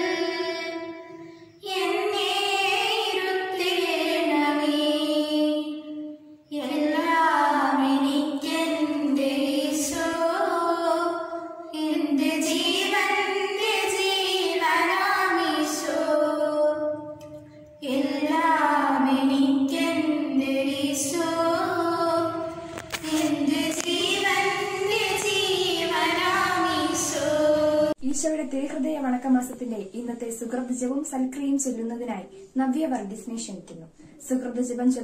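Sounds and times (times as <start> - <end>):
girls singing together: 0.0 - 28.0.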